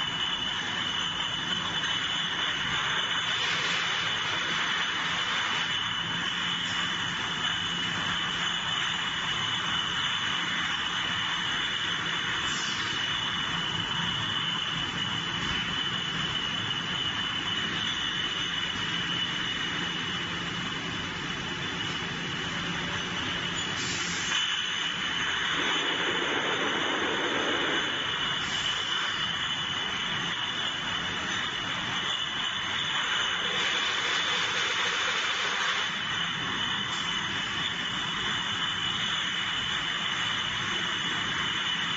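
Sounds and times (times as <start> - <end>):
high machine whine: 0.0 - 41.9
low drone: 24.2 - 29.1.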